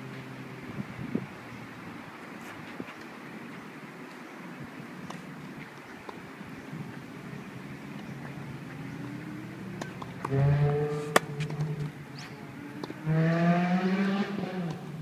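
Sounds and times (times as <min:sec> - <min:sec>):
racquet striking tennis ball: 0:11.0 - 0:11.7.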